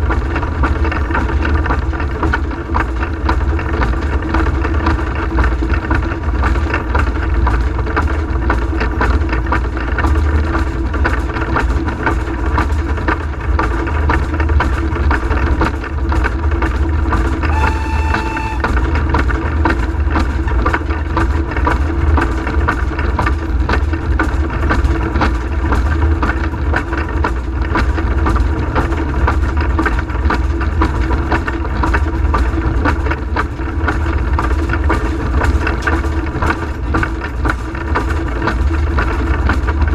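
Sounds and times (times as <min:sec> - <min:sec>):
steam locomotive rumble and rattle: 0:00.0 - 0:39.9
steam whistle: 0:17.4 - 0:18.9.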